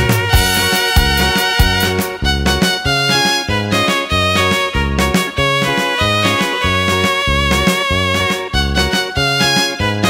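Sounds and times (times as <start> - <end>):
dance music with electronic organ: 0.0 - 4.0.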